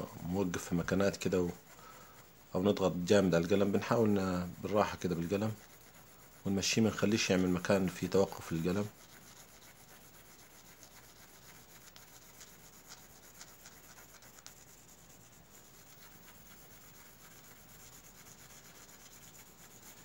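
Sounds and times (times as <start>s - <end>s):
pencil scratching on paper: 0.0s - 20.0s.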